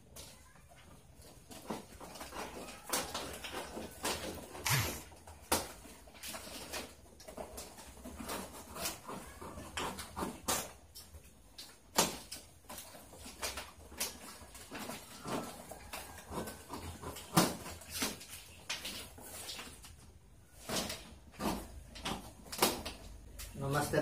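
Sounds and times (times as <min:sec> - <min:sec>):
plastic strips rustling and crinkling: 0:00.0 - 0:24.0.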